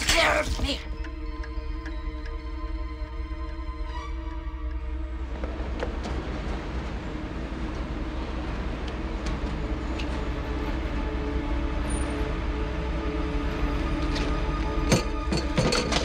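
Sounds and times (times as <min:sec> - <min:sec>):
passing vehicle rumbling: 0:05.1 - 0:14.5.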